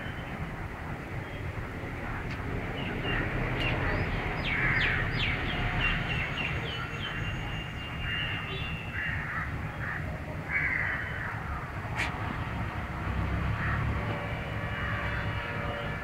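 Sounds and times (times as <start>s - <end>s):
birds chirping: 0.0s - 12.7s
low steady rumble: 0.0s - 16.0s
harsh bird calls: 2.7s - 12.2s.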